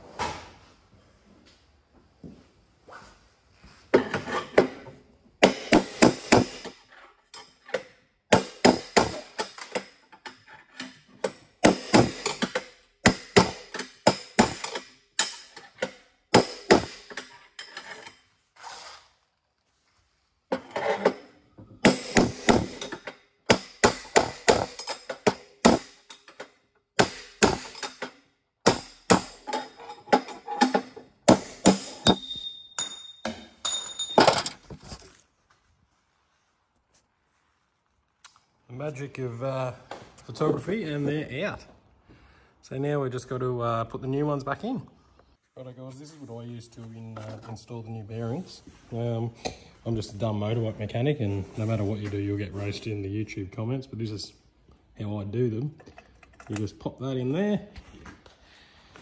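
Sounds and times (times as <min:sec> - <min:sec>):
hammer striking metal punch: 0:05.4 - 0:06.8, 0:08.3 - 0:09.9, 0:11.2 - 0:15.6, 0:16.3 - 0:17.3, 0:21.8 - 0:26.2, 0:27.0 - 0:29.7, 0:30.6 - 0:34.2.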